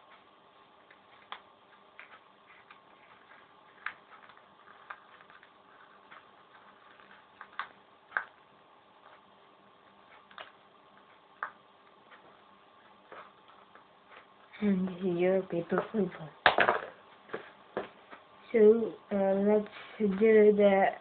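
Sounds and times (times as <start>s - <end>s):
faint steady hum: 0.0s - 21.0s
paper being folded: 2.0s - 8.3s.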